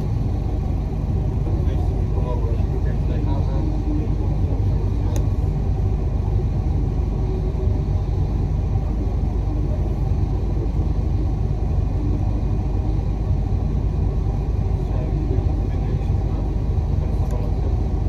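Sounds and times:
street traffic: 0.0s - 18.0s.

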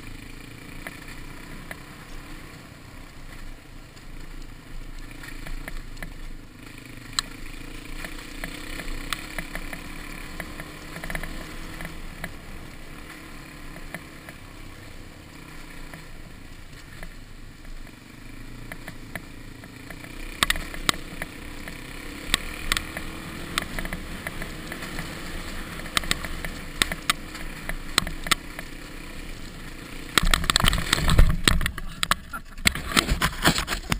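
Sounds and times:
dirt bike engine: 0.0s - 33.9s
rattles and knocks over bumps: 18.7s - 33.9s
motorcycle crashing: 30.1s - 33.9s.

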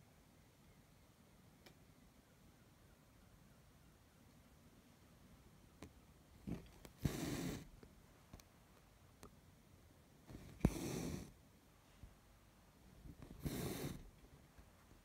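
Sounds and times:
thread rasping through fabric: 10.3s - 11.3s.

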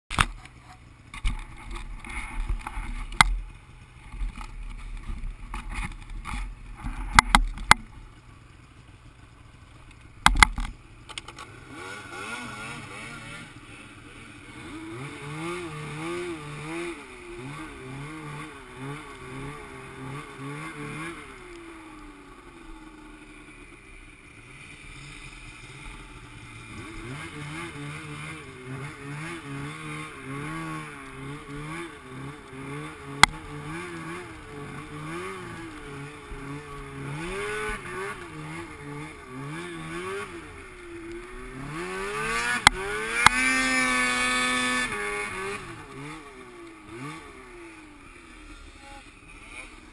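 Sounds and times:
snowmobile engine revving: 11.4s - 49.9s.

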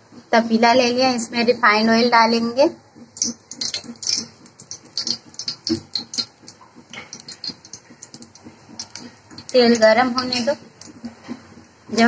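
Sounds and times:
oil clicking and popping: 2.9s - 12.0s.

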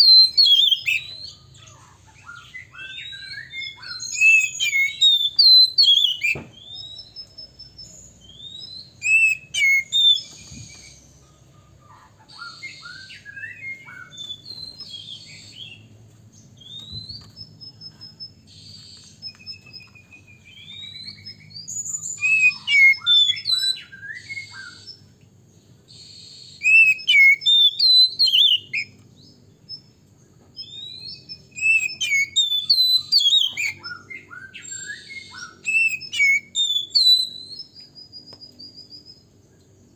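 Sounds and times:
bird singing varied whistles: 0.0s - 1.4s, 2.3s - 11.2s, 12.3s - 15.9s, 16.6s - 25.2s, 25.9s - 30.0s, 30.6s - 39.3s.

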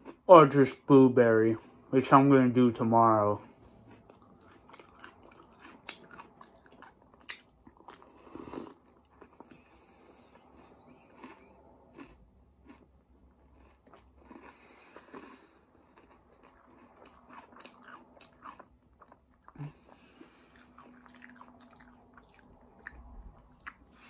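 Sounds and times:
chewing and crunching cereal: 0.0s - 24.0s.

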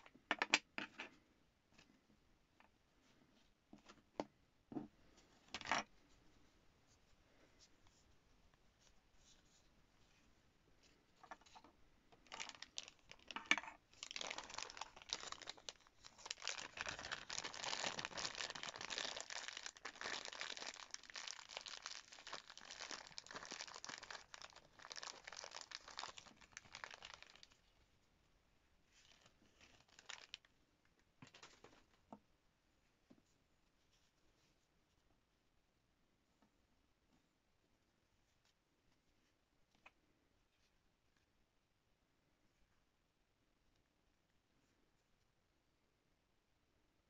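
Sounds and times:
plastic bag crinkling: 12.2s - 27.6s, 28.9s - 30.5s.

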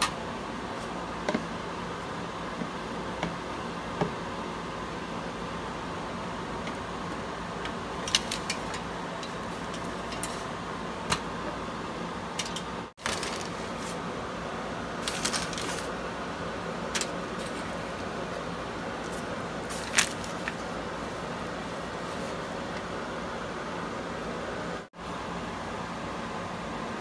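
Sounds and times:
room hum: 0.0s - 27.0s
aluminium foil crackling: 7.9s - 10.5s, 13.0s - 14.0s, 15.0s - 16.0s, 19.0s - 22.4s.

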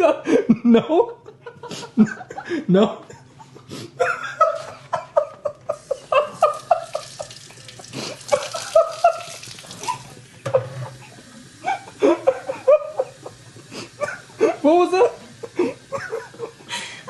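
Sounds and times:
woman laughing: 0.4s - 10.1s, 11.6s - 17.0s
faucet running: 5.7s - 17.0s
woman rinsing her mouth: 5.8s - 17.0s.

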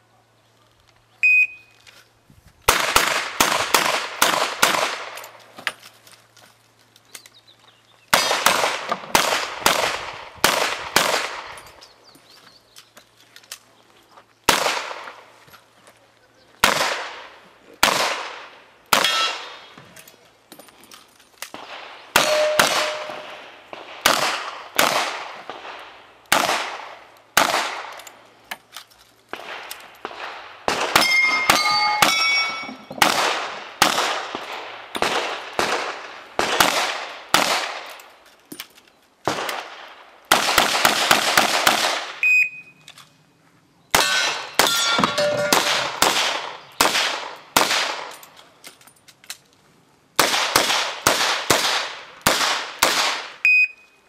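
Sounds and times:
steel targets ringing: 19.0s - 19.6s, 22.2s - 23.5s, 31.0s - 33.0s, 44.0s - 46.0s
revolver shots echoing: 22.1s - 25.2s.

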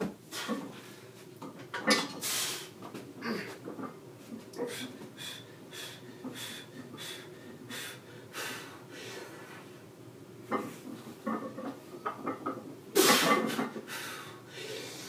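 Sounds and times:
hard rhythmic breathing: 4.5s - 9.7s, 13.0s - 15.0s.

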